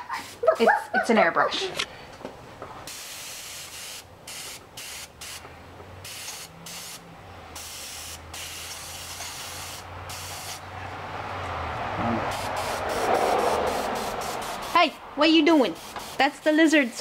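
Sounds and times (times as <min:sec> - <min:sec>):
airbrush spraying paint: 0:00.0 - 0:00.6, 0:02.9 - 0:10.7, 0:12.3 - 0:17.0.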